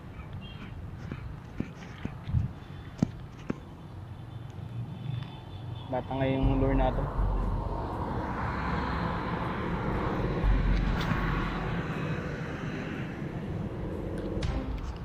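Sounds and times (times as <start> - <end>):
passing vehicle rushing: 6.0 - 15.0.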